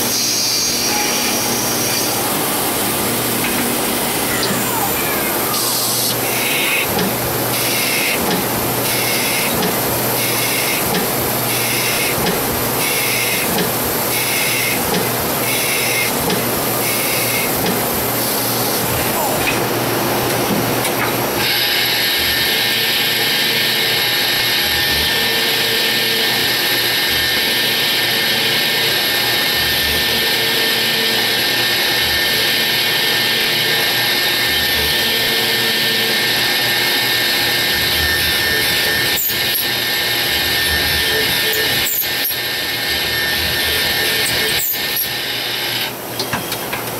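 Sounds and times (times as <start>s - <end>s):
low pulsing of milling tools: 0.0s - 4.8s, 21.4s - 46.2s.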